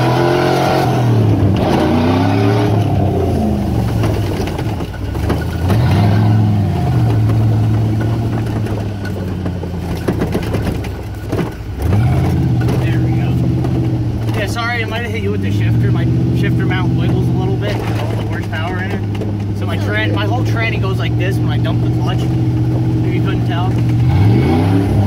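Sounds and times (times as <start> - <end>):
truck engine: 0.0 - 25.0
clicks and knocks: 3.7 - 14.9, 17.0 - 19.8.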